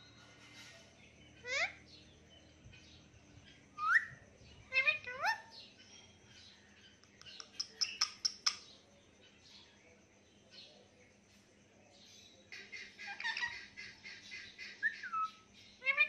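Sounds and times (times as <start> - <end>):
parakeets whistled calls: 1.4 - 1.8, 3.8 - 5.5, 14.6 - 16.0.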